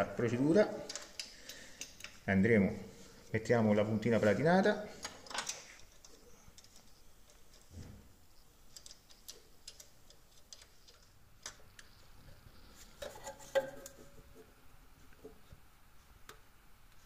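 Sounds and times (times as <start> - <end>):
small clicks and taps of fitting parts: 0.9 - 2.2.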